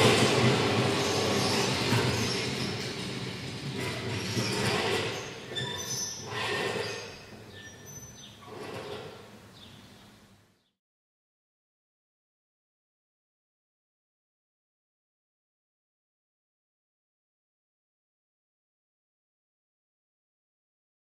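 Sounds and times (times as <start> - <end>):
metallic rattling and clatter: 0.0 - 7.6
high squeaks: 0.9 - 3.0, 3.7 - 9.3.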